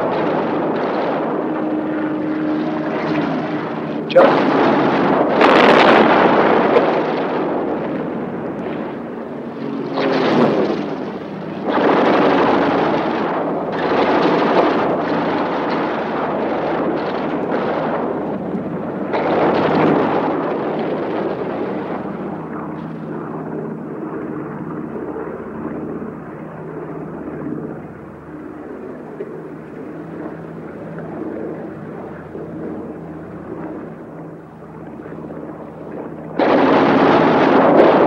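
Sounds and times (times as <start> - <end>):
rumbling explosions: 0.0 - 26.4, 27.1 - 38.0
propeller aircraft engine droning: 0.0 - 38.0
gunfire: 36.4 - 38.0.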